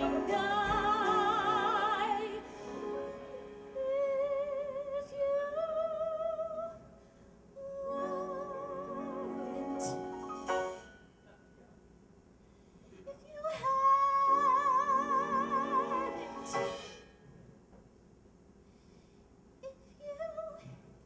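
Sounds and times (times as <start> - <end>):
piano accompaniment: 0.0 - 4.4, 8.0 - 11.0, 14.2 - 17.1
woman singing with vibrato: 0.0 - 6.9, 7.6 - 10.2, 13.1 - 16.8, 19.6 - 20.8.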